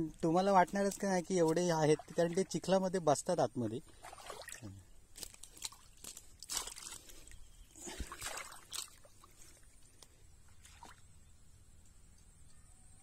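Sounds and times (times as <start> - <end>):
mud squelching underfoot: 0.2 - 2.7, 3.8 - 11.2
stubble crackling underfoot: 4.0 - 10.0.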